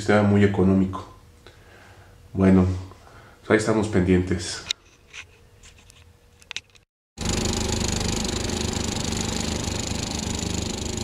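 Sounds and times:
loud engine-like machine noise: 7.2 - 11.0.

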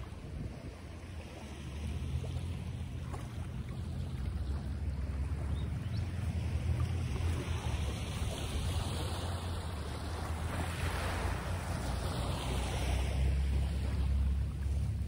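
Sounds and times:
steady low rumble: 0.0 - 15.0
wind and water rushing: 0.0 - 15.0.

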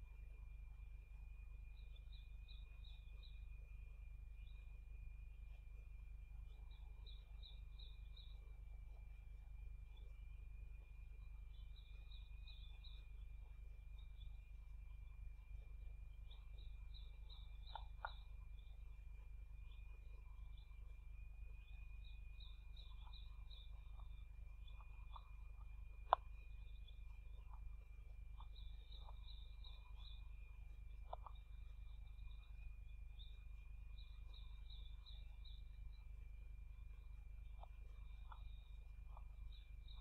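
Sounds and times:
low hum: 0.0 - 40.0
soft ticks: 16.6 - 18.7, 22.0 - 33.4, 36.8 - 40.0.

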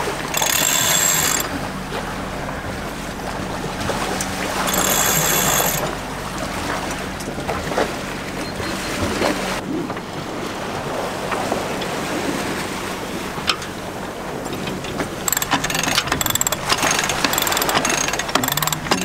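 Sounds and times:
winch ratcheting clicks: 0.0 - 7.3, 14.5 - 19.0
wind and water rushing: 0.0 - 19.0.

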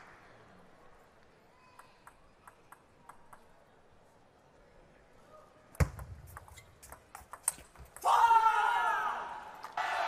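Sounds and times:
table tennis ball bouncing: 1.7 - 3.5, 5.8 - 8.1.

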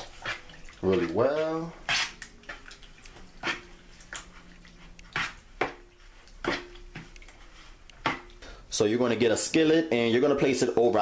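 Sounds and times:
utensil knocking and scraping bowl: 0.0 - 8.4
utensil stirring thick sauce: 0.0 - 11.0.

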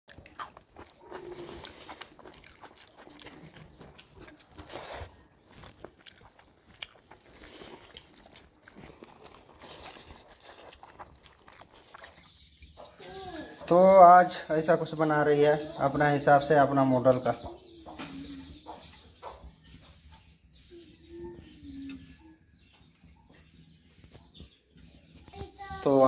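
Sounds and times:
close chewing and crunching: 0.1 - 14.0
fingers mixing food on steel plates: 0.1 - 14.0.

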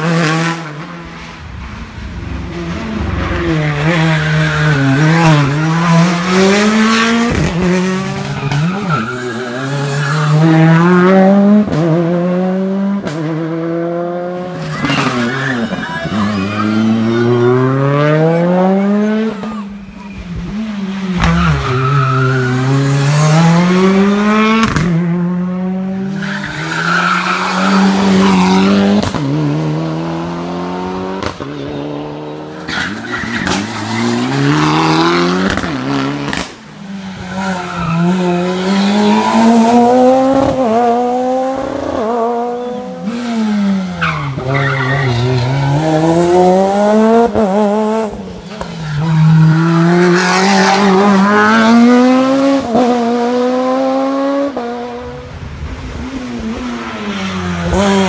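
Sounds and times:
rally car engines revving: 0.0 - 58.0
tyre squeal: 8.2 - 10.5, 14.6 - 20.4, 32.4 - 34.4.

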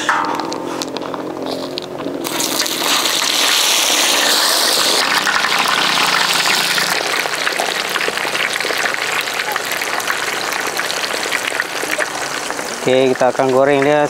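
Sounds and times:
oil bubbling and crackling: 0.0 - 14.0
fries sizzling in hot oil: 1.5 - 14.0.

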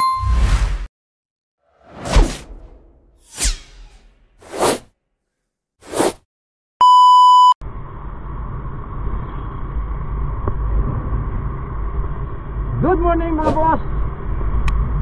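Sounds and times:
whoosh sound effect: 1.8 - 4.8
electronic beep: 6.8 - 7.6
motorcycle road and wind noise: 8.6 - 15.0.

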